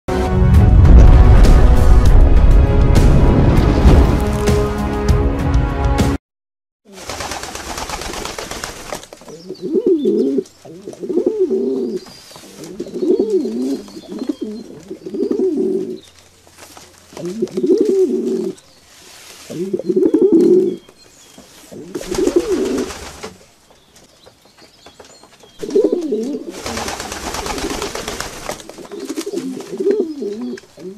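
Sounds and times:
rushing noise: 0:00.3 - 0:04.8
pigeons cooing: 0:09.3 - 0:16.0, 0:17.1 - 0:18.6, 0:19.5 - 0:20.8, 0:21.7 - 0:23.4, 0:25.6 - 0:30.9.

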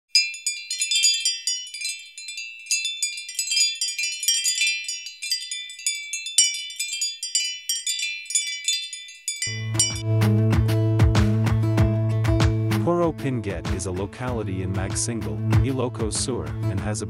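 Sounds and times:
high tinkling chime jingle: 0:00.1 - 0:10.1.

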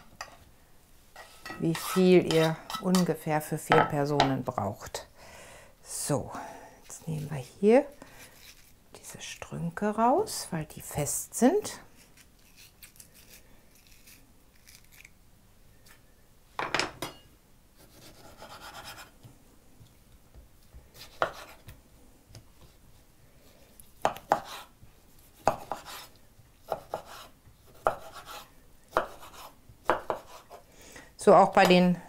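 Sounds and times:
knife cutting tomatoes: 0:20.8 - 0:22.7, 0:24.0 - 0:30.6.

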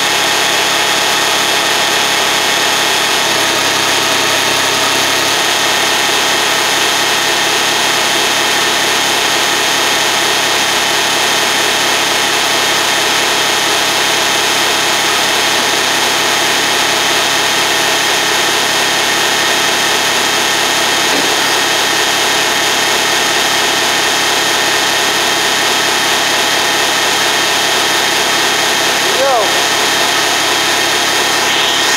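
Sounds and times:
diesel engine idling: 0:00.0 - 0:31.9.

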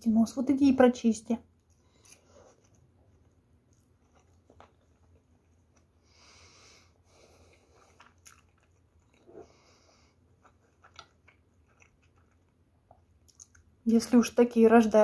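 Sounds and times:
faint chewing: 0:01.6 - 0:13.8.

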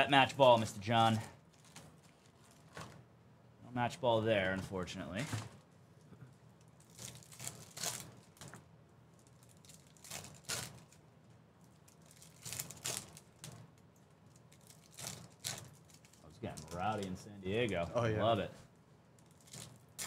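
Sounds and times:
foil wrapper crinkling and tearing: 0:00.2 - 0:03.0, 0:06.6 - 0:08.5, 0:09.1 - 0:11.0, 0:11.6 - 0:17.8, 0:19.2 - 0:20.0.

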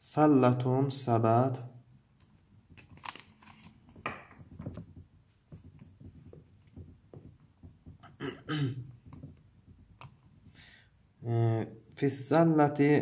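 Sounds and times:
paper page rustling: 0:02.3 - 0:06.3.

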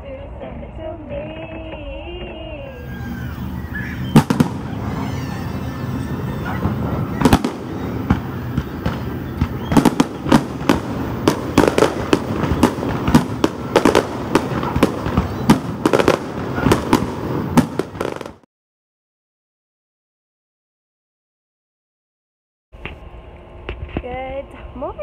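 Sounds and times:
firework bangs and crackles: 0:03.1 - 0:18.5.

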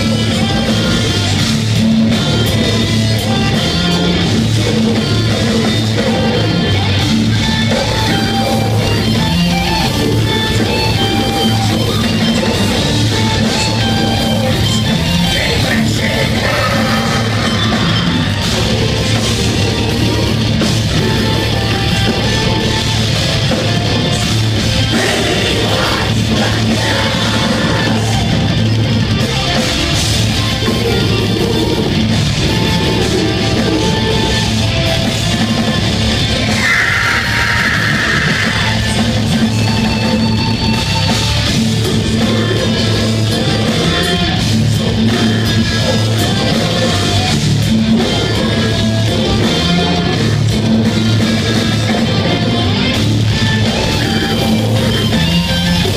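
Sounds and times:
distorted electric guitars: 0:00.0 - 0:55.9
drum kit: 0:00.0 - 0:55.9
harsh shouted vocals: 0:15.0 - 0:21.6, 0:24.0 - 0:28.7, 0:36.4 - 0:39.5.

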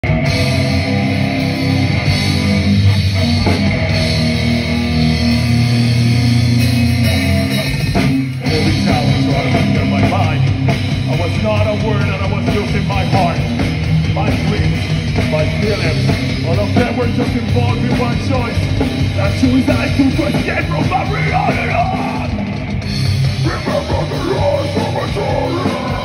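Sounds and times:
metal band playing live: 0:00.0 - 0:26.0.

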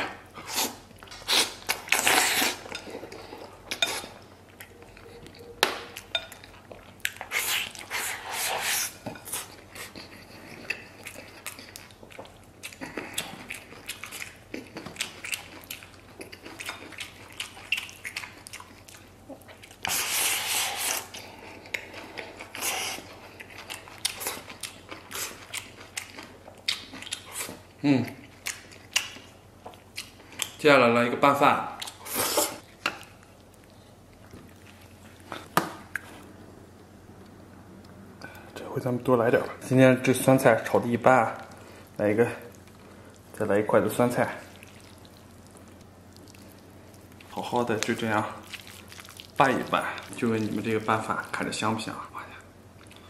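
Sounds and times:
wet chewing and lip smacking: 0:00.6 - 0:20.1, 0:20.8 - 0:30.6, 0:44.4 - 0:50.3.

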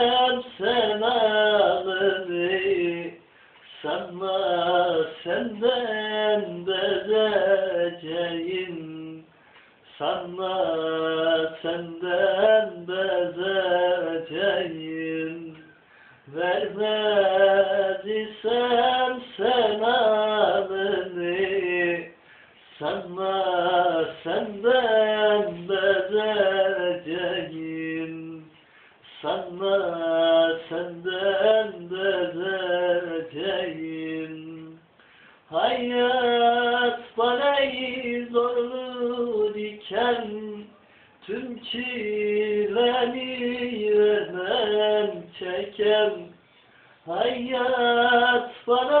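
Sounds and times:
young man singing: 0:00.0 - 0:46.4, 0:47.0 - 0:49.0
breath: 0:03.2 - 0:03.7, 0:09.3 - 0:09.9, 0:15.7 - 0:16.3, 0:22.2 - 0:22.7, 0:28.6 - 0:29.1, 0:35.0 - 0:35.5, 0:40.8 - 0:41.2, 0:46.4 - 0:47.0.

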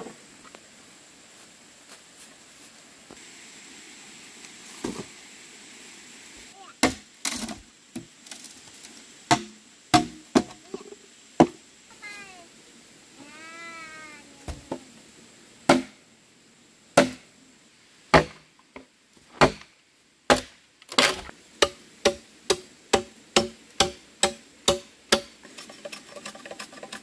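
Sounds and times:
chopping wood: 0:06.8 - 0:08.1, 0:09.3 - 0:10.6, 0:15.7 - 0:16.0, 0:17.0 - 0:17.2, 0:18.1 - 0:18.4, 0:19.4 - 0:19.7, 0:20.3 - 0:25.4
cat meowing: 0:13.2 - 0:14.9.

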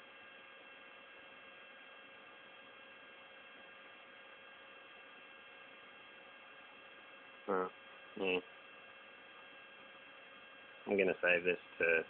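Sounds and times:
light electrical hum: 0:00.0 - 0:12.0
faint steady hiss: 0:07.2 - 0:12.0.

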